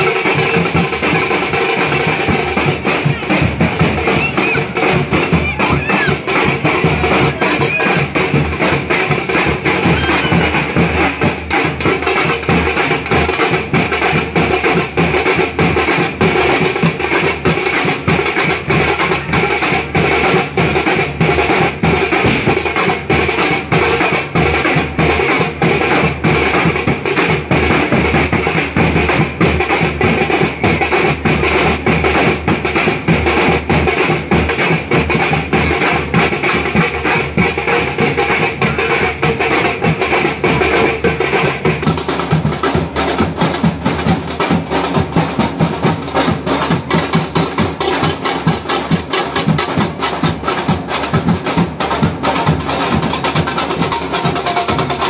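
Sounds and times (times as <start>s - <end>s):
fast dhol drumming: 0.0s - 55.0s.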